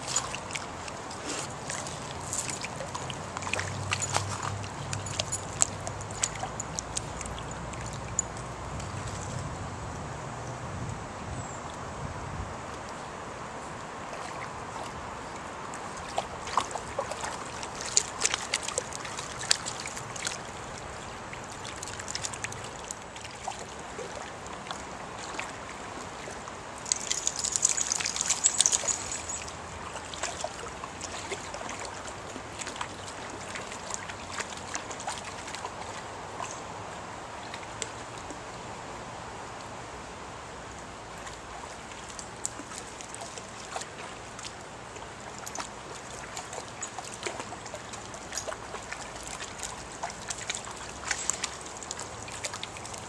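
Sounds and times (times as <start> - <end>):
dog splashing through water: 0.0 - 9.5, 15.8 - 36.7, 41.1 - 53.0
stream water trickling: 0.0 - 53.0.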